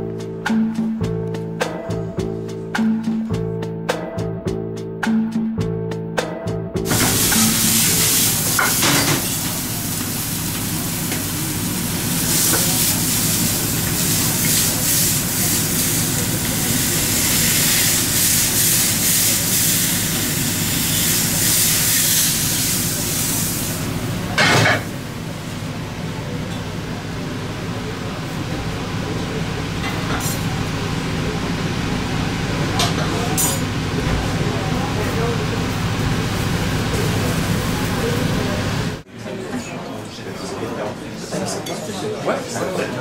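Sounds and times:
food sizzling in pans: 0:06.9 - 0:24.0.

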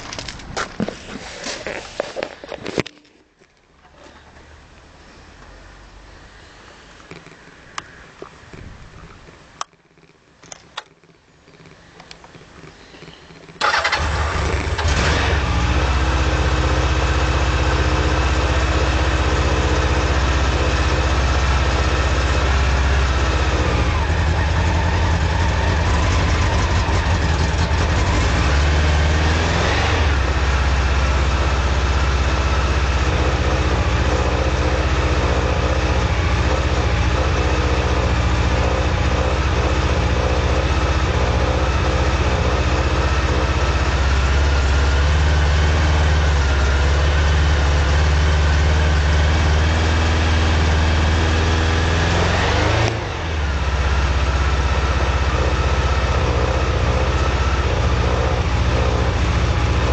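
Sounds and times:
motorcycle engine idling: 0:11.7 - 0:29.4, 0:30.1 - 0:51.5, 0:53.2 - 0:59.9.

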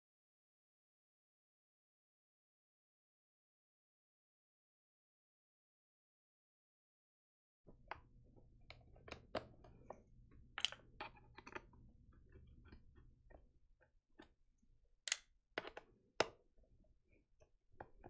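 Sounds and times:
small tools clicking and tapping: 0:07.8 - 0:13.5, 0:15.1 - 0:16.4.

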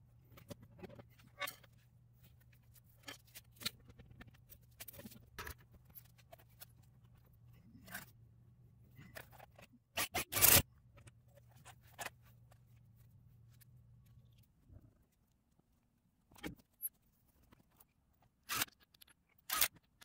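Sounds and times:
small metal clicks and scrapes: 0:00.3 - 0:01.8, 0:16.3 - 0:20.0.

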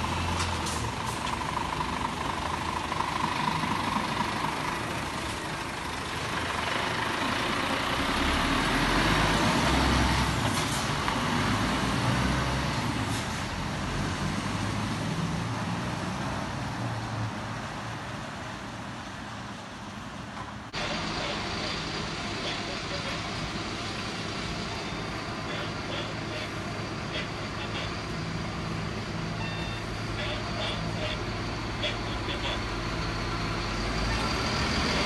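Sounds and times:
lorry diesel engine driving past: 0:00.0 - 0:17.9, 0:20.7 - 0:35.0.

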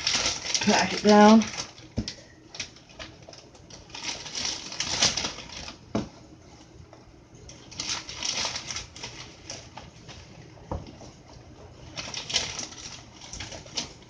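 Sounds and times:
straw rustling and crunching: 0:00.0 - 0:05.9, 0:07.5 - 0:10.4
plastic bag rustling: 0:00.0 - 0:14.0.

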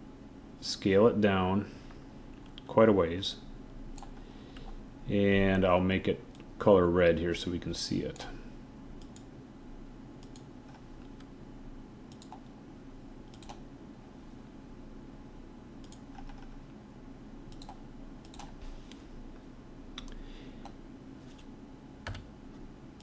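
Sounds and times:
steady low hum: 0:00.0 - 0:23.0.

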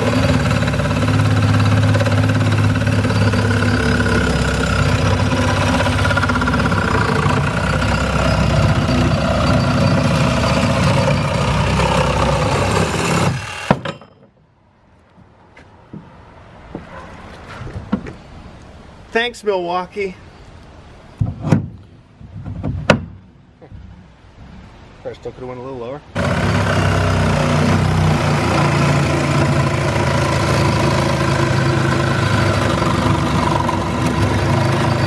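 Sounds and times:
reciprocating saw cutting metal: 0:00.0 - 0:14.0, 0:26.2 - 0:35.0
metal clunk: 0:13.6 - 0:14.4.

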